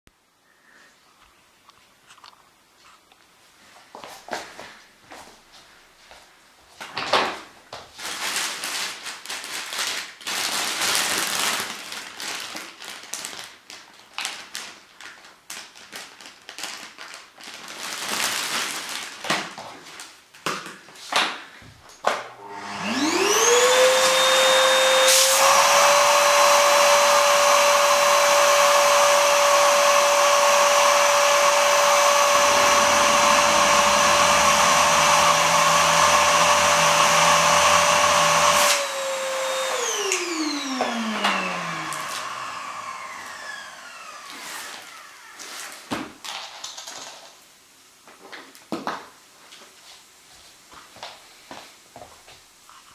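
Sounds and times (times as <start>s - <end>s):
plastic bag crinkling: 7.9s - 20.2s
vacuum cleaner motor whining: 22.3s - 45.8s.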